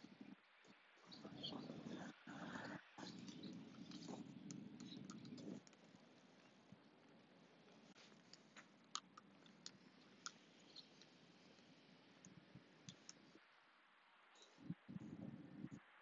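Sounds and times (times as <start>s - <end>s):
faint outdoor hiss: 0.0s - 16.0s
soft ticks: 7.6s - 13.3s.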